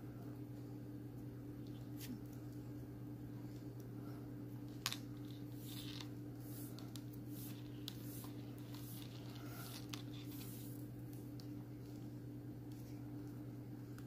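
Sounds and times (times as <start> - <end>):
steady low hum: 0.0 - 14.0
hands lacing leather rustling: 4.9 - 12.0.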